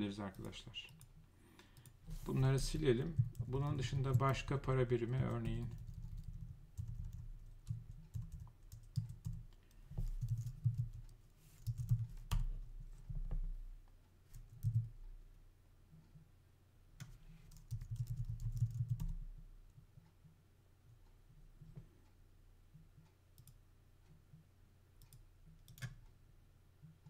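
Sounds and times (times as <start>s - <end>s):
computer keyboard typing: 2.6s - 12.5s, 14.4s - 14.9s, 17.0s - 19.2s, 25.1s - 26.0s.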